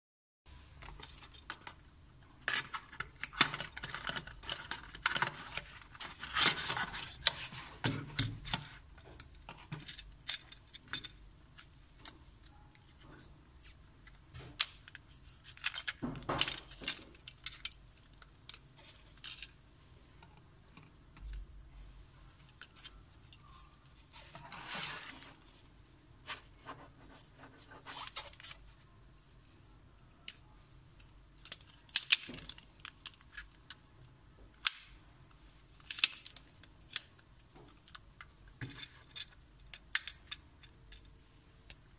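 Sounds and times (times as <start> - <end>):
clicks rattles and scrapes: 2.5 - 11.2
cardboard and plastic rustling: 24.0 - 28.8.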